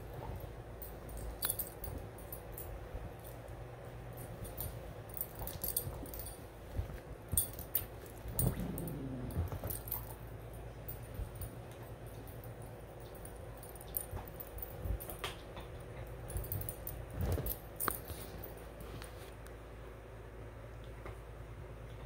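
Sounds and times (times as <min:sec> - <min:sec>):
collar tags jingling: 0:00.1 - 0:15.2.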